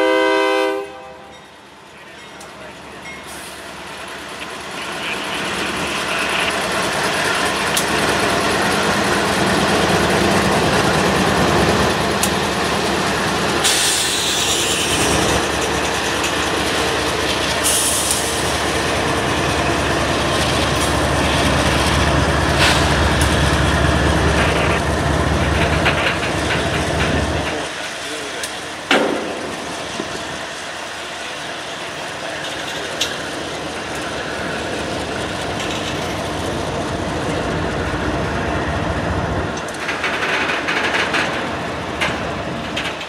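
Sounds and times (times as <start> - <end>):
steel wheels rolling on rails: 1.3 - 43.0
locomotive engines running: 1.4 - 43.0.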